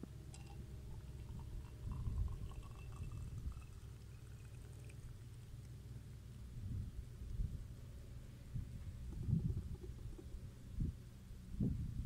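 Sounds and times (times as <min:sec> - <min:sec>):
tea trickling into a glass: 0:00.3 - 0:05.8.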